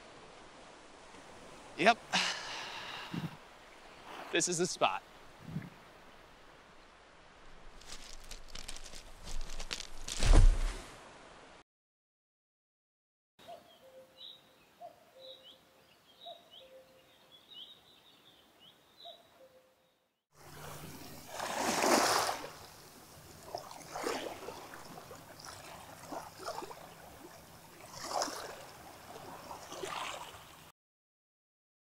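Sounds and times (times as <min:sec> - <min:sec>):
water lapping on pebble shore: 0:07.4 - 0:11.0, 0:20.4 - 0:30.6.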